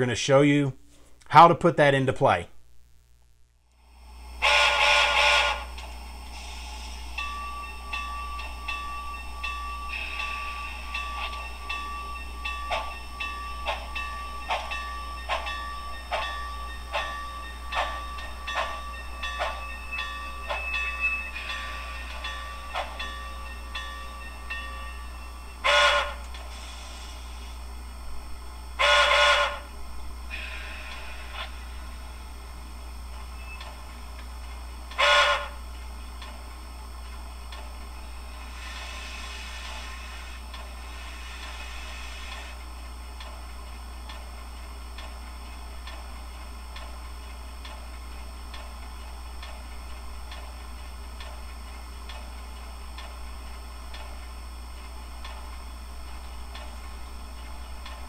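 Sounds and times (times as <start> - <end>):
steam locomotive exhaust chuffs: 3.8 - 58.0
model train whistle: 4.4 - 5.8, 25.6 - 26.3, 28.8 - 29.7, 34.9 - 35.6.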